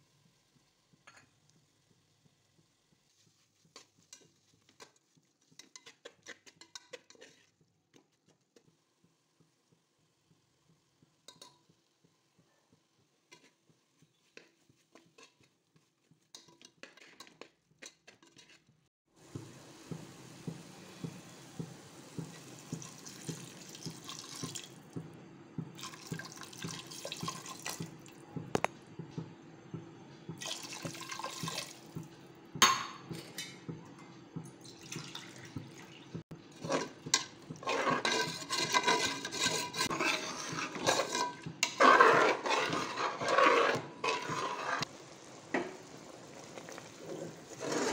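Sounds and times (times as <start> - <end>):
spatula scraping a pan: 3.0 - 8.7, 13.2 - 23.4, 36.4 - 45.9, 46.6 - 47.9
liquid sloshing in a pan: 13.3 - 25.0, 25.8 - 28.6, 30.3 - 32.1, 34.6 - 47.9.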